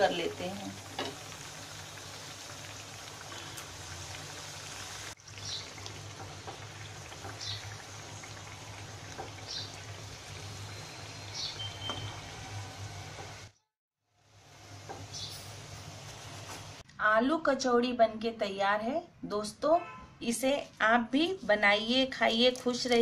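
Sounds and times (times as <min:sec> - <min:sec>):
food deep-frying in hot oil: 0:00.0 - 0:13.6.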